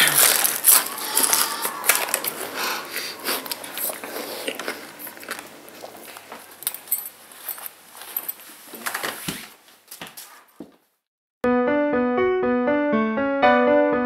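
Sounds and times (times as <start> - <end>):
wrapper crinkling: 0.0 - 2.6.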